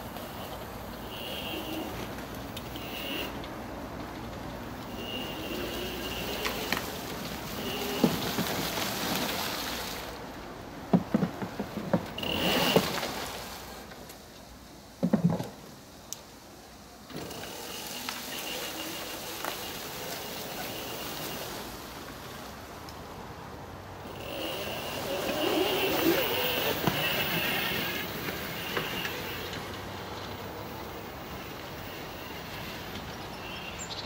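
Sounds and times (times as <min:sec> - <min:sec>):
tyres rustling over leaves: 0:00.0 - 0:34.0
electric motor whine: 0:04.9 - 0:08.4, 0:17.1 - 0:21.6, 0:24.0 - 0:29.7.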